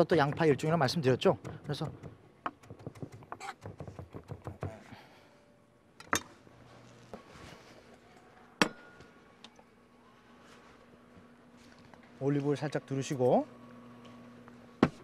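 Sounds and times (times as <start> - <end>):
sharp knocks: 1.4 - 4.8.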